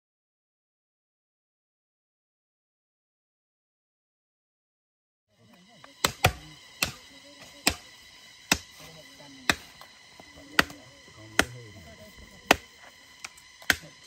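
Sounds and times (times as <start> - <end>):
faint voices talking: 5.4 - 14.0
knife chopping meat: 6.0 - 7.0, 7.6 - 7.8, 8.5 - 8.8, 13.6 - 13.9.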